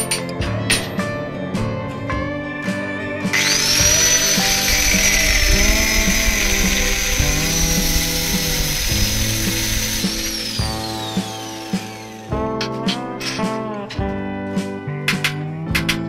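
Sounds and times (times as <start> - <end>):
background music with steady beat: 0.0 - 16.0
power tool high-pitched whine: 3.3 - 12.4.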